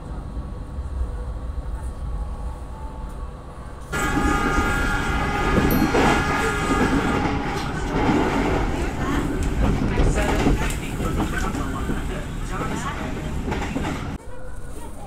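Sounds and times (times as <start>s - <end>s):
train rumbling on rails: 0.0s - 15.0s
train cars rattling: 3.7s - 15.0s
high multi-tone ringing: 4.2s - 8.0s.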